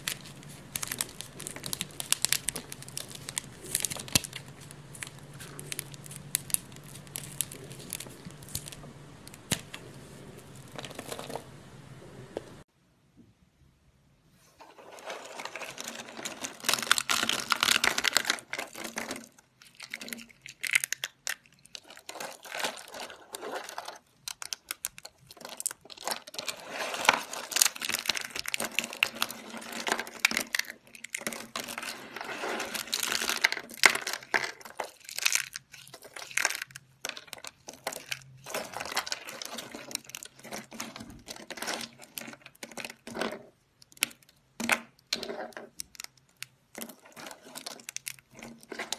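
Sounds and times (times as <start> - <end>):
soap slices crunching: 0.0 - 11.3, 32.6 - 43.1.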